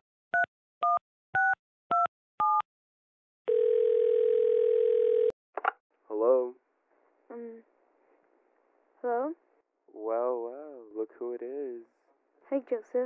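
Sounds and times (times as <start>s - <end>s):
telephone ringback tone: 3.5s - 5.3s.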